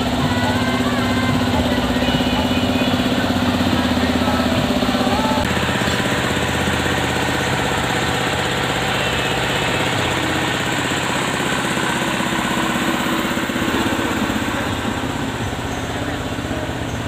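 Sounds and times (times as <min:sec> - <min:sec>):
distorted throbbing bass from loudspeakers: 0:00.0 - 0:17.0.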